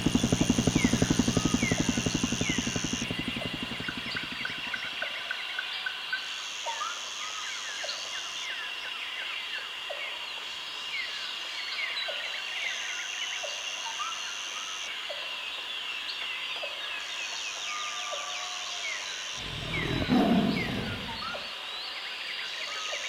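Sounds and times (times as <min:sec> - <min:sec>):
birds chirping: 0:00.0 - 0:04.9, 0:19.4 - 0:21.4
higher buzz: 0:00.0 - 0:04.9, 0:19.4 - 0:21.4
steady high drone: 0:00.0 - 0:05.0, 0:19.4 - 0:21.4.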